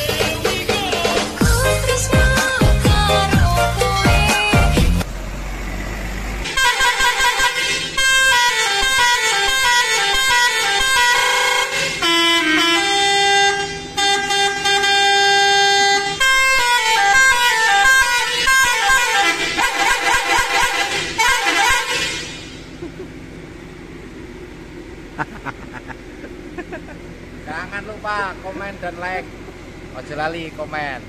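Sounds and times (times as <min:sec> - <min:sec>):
multi-tone air horn melody: 0:06.5 - 0:22.7.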